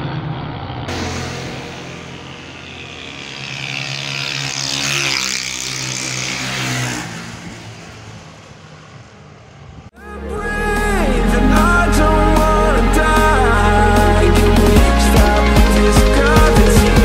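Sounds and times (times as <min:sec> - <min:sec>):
motorcycle engine passing by: 0:00.0 - 0:09.9.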